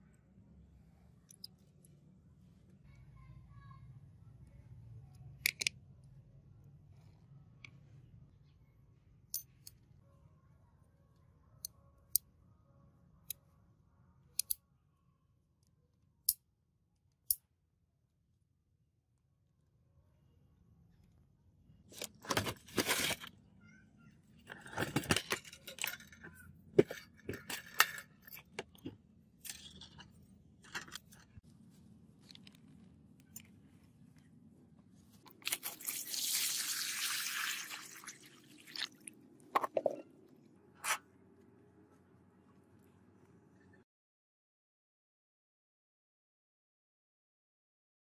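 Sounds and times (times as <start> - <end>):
metal revolver clicks and knocks: 14.4 - 14.6
water pouring into plastic tub: 35.5 - 39.1.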